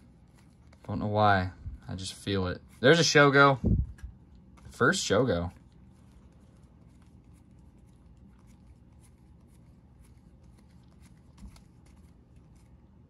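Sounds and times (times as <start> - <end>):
low background hum: 0.0 - 13.0
cards flipped by hand: 6.1 - 12.8.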